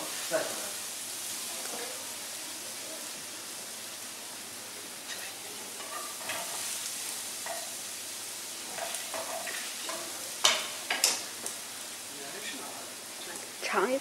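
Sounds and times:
food sizzling in a frying pan: 0.0s - 14.0s
spatula scraping a pan: 5.1s - 6.8s, 8.7s - 11.3s.

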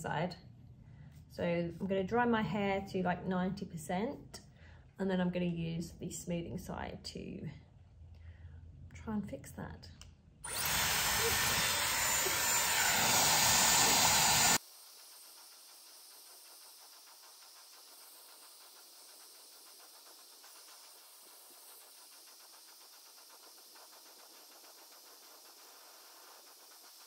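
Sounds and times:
hair dryer blowing air: 10.5s - 14.6s
faint hiss: 10.6s - 27.0s.

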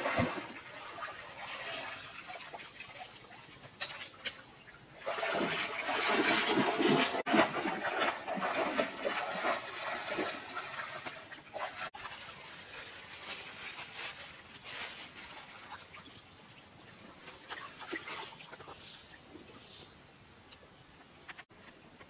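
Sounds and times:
water splashing from wading: 0.0s - 3.8s, 5.0s - 12.2s
stream running over stones: 0.0s - 22.0s.

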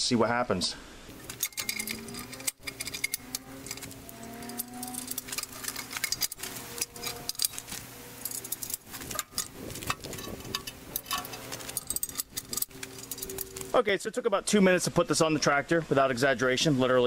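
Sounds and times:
metal clinks and rattles: 1.1s - 13.8s.

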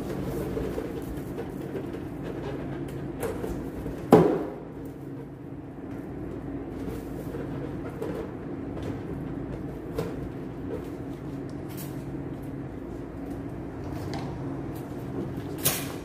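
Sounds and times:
steady low hum: 0.0s - 16.0s.

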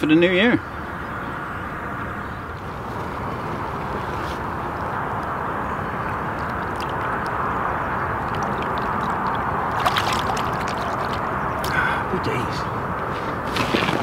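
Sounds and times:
water sloshing and lapping: 6.1s - 11.7s
fish splashing: 6.2s - 11.7s.

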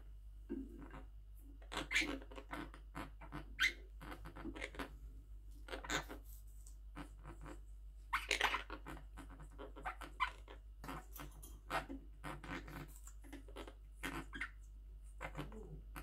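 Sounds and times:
parrots harsh calls and chatters: 0.6s - 16.0s
beak clicks and nibbling: 8.2s - 16.0s.

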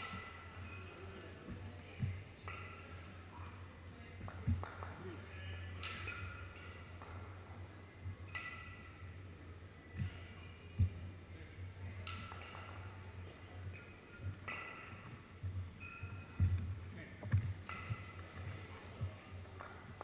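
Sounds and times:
kettlebells thumping: 4.2s - 5.2s, 13.7s - 20.0s.

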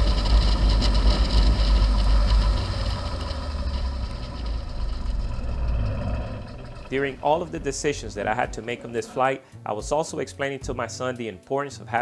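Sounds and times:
light aircraft engine and propeller: 0.0s - 6.9s.

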